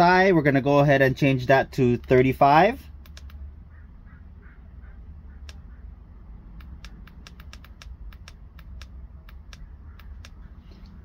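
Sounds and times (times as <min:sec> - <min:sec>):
tire inflator button clicks: 0:06.6 - 0:11.0.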